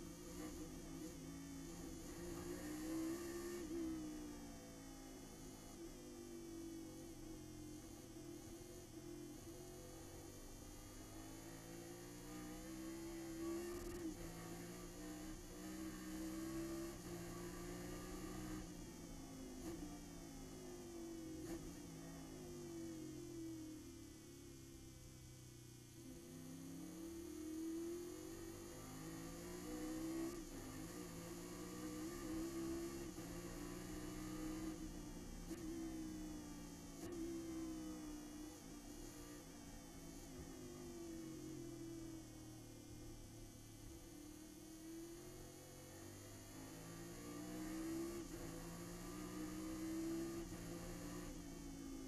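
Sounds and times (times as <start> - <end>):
race car engine full throttle: 0.0 - 24.3, 25.5 - 52.0.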